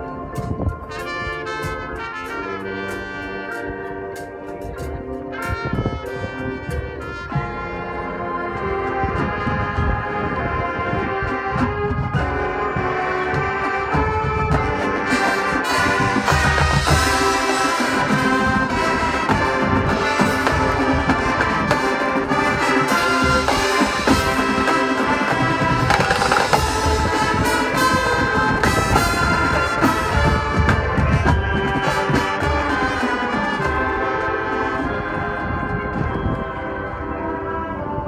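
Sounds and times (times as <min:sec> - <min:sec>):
marching band playing: 0:00.0 - 0:38.0
sharp percussion hits: 0:14.1 - 0:32.6.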